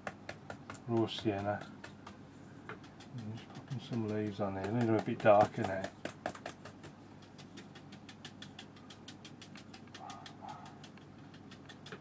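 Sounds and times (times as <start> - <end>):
brush tapping on paper: 0.0 - 12.0.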